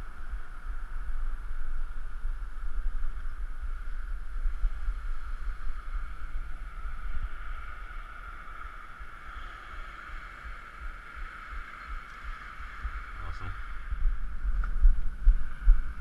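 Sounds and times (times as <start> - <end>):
steady hiss: 0.0 - 16.0
wind buffeting microphone: 0.0 - 16.0.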